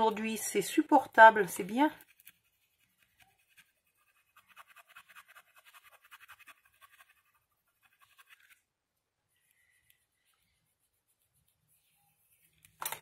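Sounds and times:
hand tool scratching paper: 1.9 - 8.6.

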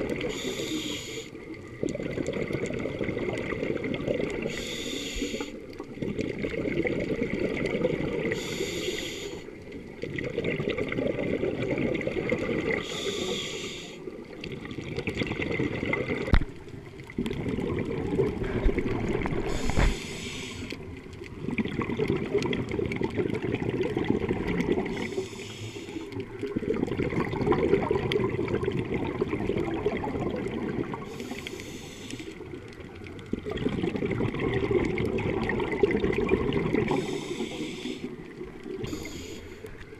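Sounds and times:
underwater exhaled bubbles: 0.0 - 39.9
diver breathing through regulator: 0.3 - 1.4, 4.4 - 5.6, 8.3 - 9.5, 12.8 - 14.1, 19.4 - 20.8, 24.8 - 26.2, 31.0 - 32.4, 36.9 - 38.2, 38.8 - 39.8.

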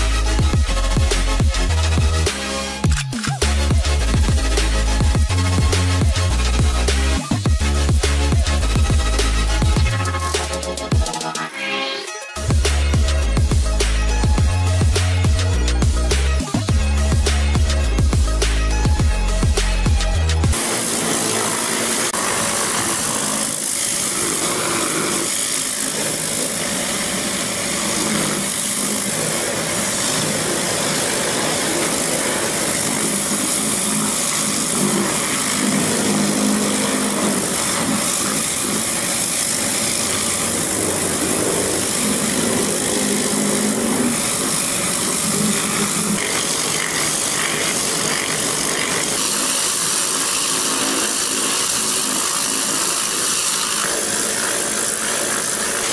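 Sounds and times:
engine running: 0.0 - 11.6, 12.4 - 55.9
pressure washer spray hiss: 20.6 - 55.9.

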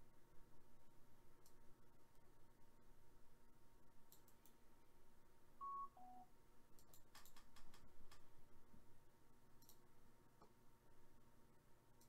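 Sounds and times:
computer mouse clicks: 1.4 - 1.6, 4.1 - 4.6, 6.8 - 8.3, 9.6 - 9.8
two-note electronic beep: 5.6 - 6.2.

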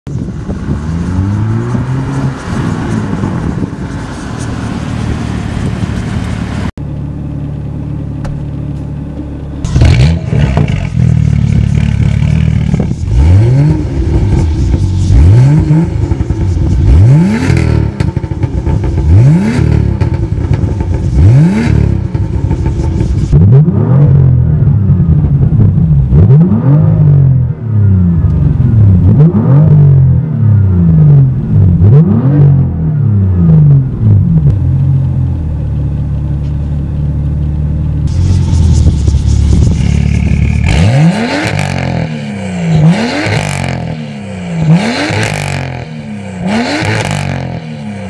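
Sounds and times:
exhaust crackling and popping: 0.1 - 26.7, 33.7 - 47.6
car engine revving and idling: 0.1 - 48.0.

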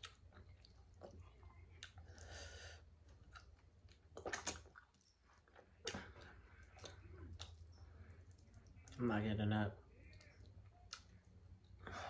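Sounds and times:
person chewing food: 0.0 - 9.0, 10.0 - 11.9
mouth clicks and smacks: 3.2 - 9.0, 10.0 - 11.8.

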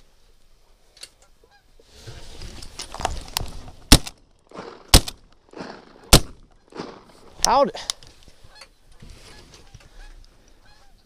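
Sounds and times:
rustle: 0.0 - 11.0
shotgun shots: 3.9 - 7.1
geese honking: 8.4 - 11.0.

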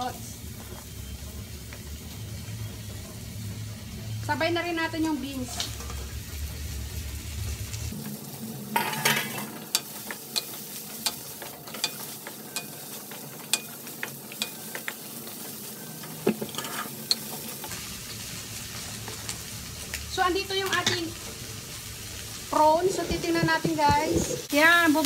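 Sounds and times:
vegetables sizzling in a wok: 0.0 - 25.0
wooden spoon scraping a pan: 22.5 - 24.6.

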